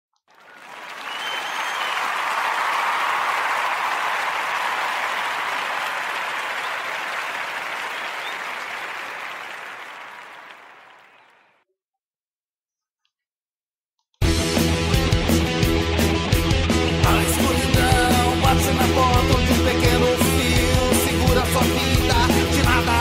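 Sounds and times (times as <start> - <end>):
crowd applauding: 0.2 - 11.6
short whistle: 1.0 - 2.2.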